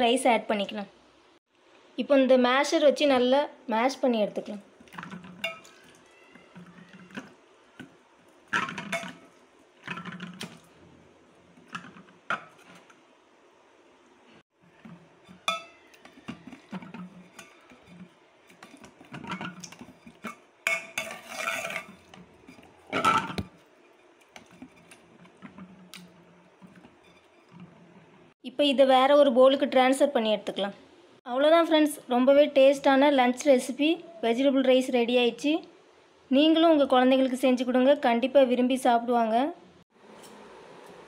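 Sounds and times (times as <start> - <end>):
metal masher clanking in a pot: 8.6 - 9.3, 14.8 - 23.4.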